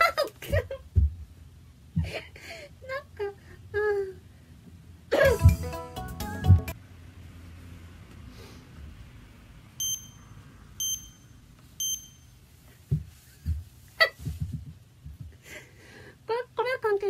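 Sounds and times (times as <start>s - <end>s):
high electronic beeps: 9.8s - 12.4s.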